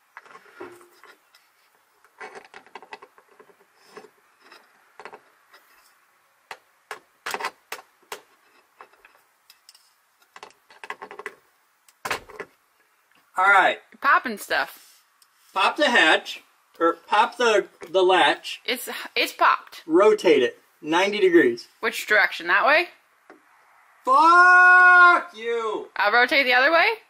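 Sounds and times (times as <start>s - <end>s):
knocks and clicks of handling: 6.5s - 12.6s.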